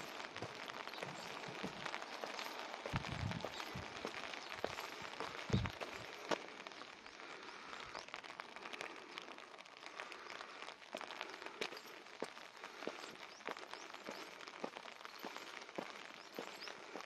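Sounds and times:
light rain hissing: 0:00.0 - 0:17.0
sharp ticks of raindrops: 0:00.0 - 0:17.0.

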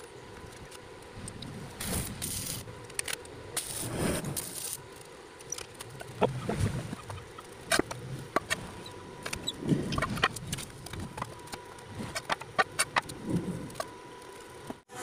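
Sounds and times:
chickens clucking: 0:05.9 - 0:10.4.

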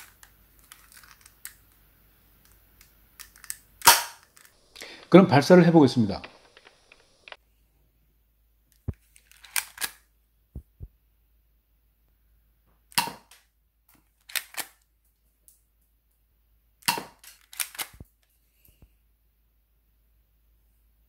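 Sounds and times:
airsoft pistol sharp snaps: 0:03.8 - 0:04.2.

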